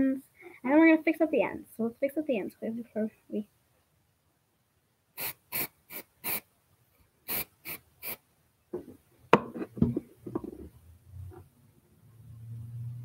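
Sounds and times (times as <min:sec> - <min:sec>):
aerosol can spraying hisses: 0:05.2 - 0:06.5, 0:07.3 - 0:08.2
knocks and bumps: 0:08.7 - 0:10.8.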